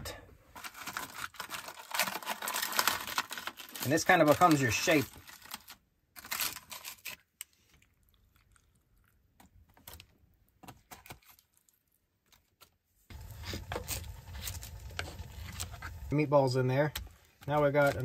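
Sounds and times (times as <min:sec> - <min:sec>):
plastic spoon scraping a can: 0:13.1 - 0:16.1
low steady hum: 0:13.1 - 0:18.0.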